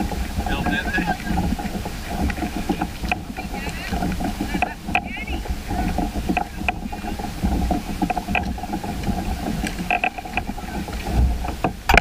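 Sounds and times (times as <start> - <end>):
knocks against plastic kayak hulls: 0.0 - 12.0
water lapping: 0.0 - 12.0
wind rumbling on microphone: 0.0 - 12.0.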